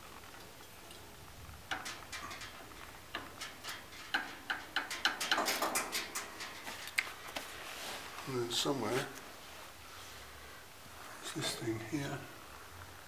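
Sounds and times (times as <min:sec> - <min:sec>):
small metal parts clicking: 0:01.7 - 0:07.2.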